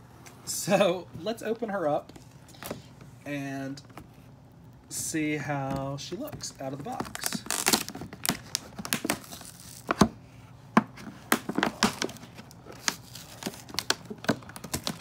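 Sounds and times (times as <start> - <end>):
plastic packaging crinkling: 6.5 - 10.0, 11.3 - 15.0
taped plastic tearing: 7.0 - 9.9.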